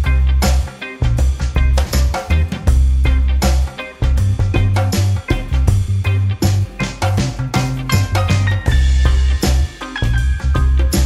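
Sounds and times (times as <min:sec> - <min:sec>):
music with drum beat and bass: 0:00.0 - 0:11.0.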